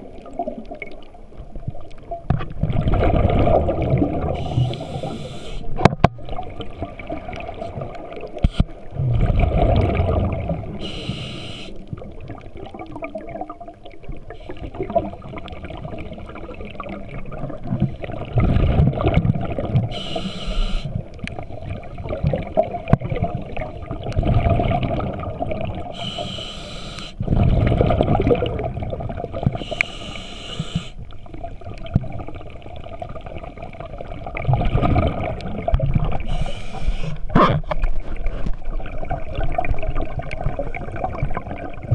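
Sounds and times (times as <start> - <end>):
exhaled bubbles gurgling: 0.0 - 41.9
regulator hissing inhalations: 4.4 - 5.7, 10.8 - 11.8, 19.9 - 21.0, 25.9 - 27.2, 29.6 - 31.0, 36.2 - 37.2.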